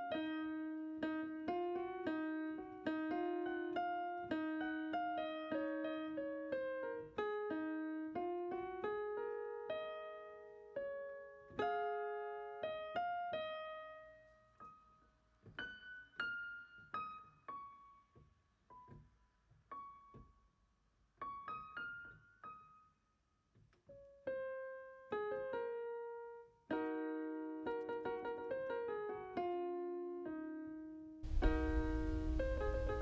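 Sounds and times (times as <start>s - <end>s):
electronic keyboard piano music: 23.9s - 33.0s.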